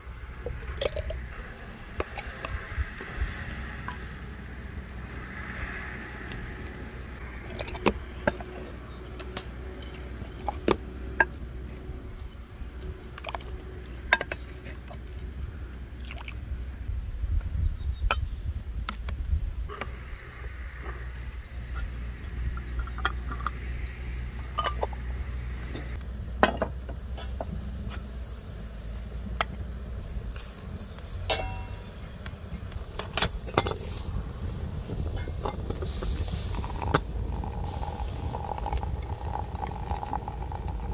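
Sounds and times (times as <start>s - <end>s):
wind rumble on microphone: 0.0s - 27.9s, 29.2s - 40.9s
glass jars clinking: 24.4s - 25.0s, 31.3s - 31.9s, 36.7s - 40.9s.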